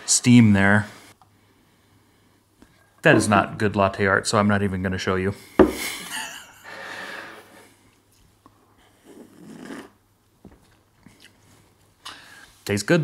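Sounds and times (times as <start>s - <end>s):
person sipping from cup: 9.0s - 10.0s.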